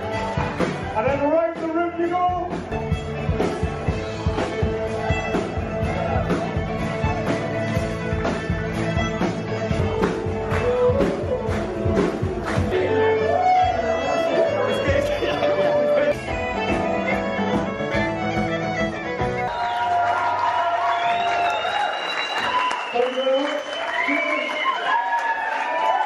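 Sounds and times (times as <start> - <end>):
band playing upbeat dance music: 0.0 - 25.0.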